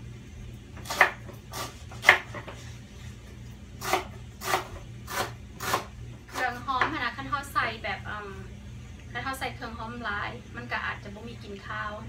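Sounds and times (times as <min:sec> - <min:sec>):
knife chopping on wooden board: 0:00.8 - 0:02.6, 0:03.8 - 0:06.9.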